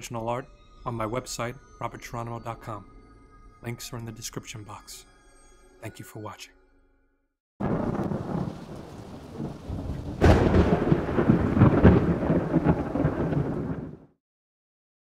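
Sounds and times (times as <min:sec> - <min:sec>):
thunder crack and rumble: 0:07.6 - 0:14.1.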